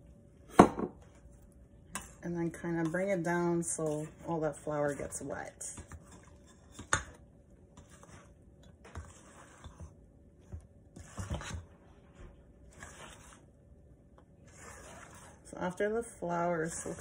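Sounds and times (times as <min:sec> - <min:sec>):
utensil scraping mixing bowl: 0:01.9 - 0:11.9, 0:12.6 - 0:13.5, 0:14.4 - 0:17.0.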